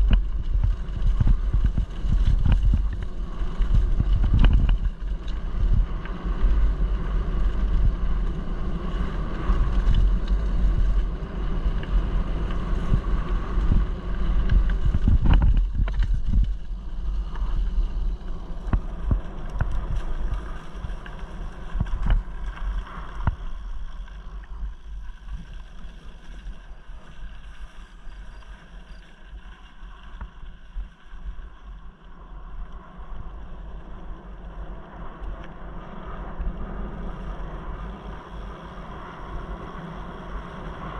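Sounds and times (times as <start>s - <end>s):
bike knocks and rattles: 0.0s - 5.9s, 12.4s - 16.9s
wind buffeting microphone: 0.0s - 28.3s
low rumble of tyres: 0.0s - 40.9s.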